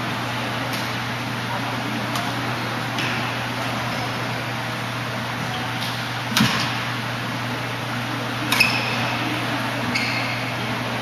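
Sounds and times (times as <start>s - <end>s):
racket hitting shuttlecock: 5.8s - 6.9s
shoe squeaks on court floor: 9.9s - 10.6s.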